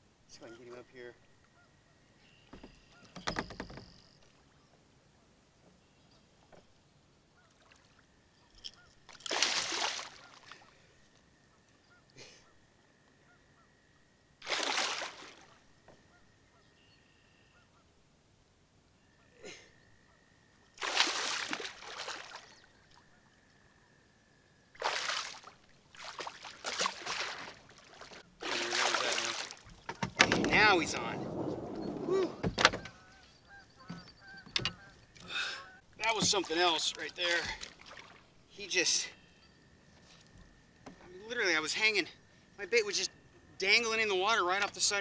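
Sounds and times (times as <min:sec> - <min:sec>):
faint bird chirps: 0:00.3 - 0:09.0, 0:10.2 - 0:14.4, 0:15.4 - 0:17.9, 0:22.4 - 0:24.8, 0:30.6 - 0:35.9, 0:38.5 - 0:43.6
fish splashing at surface: 0:09.2 - 0:10.6, 0:14.4 - 0:15.4, 0:20.8 - 0:22.5, 0:24.8 - 0:32.5.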